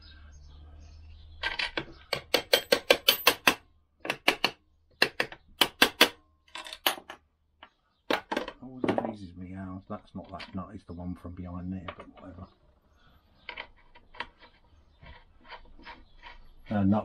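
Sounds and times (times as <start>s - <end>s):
hammer tapping metal: 2.1s - 6.2s.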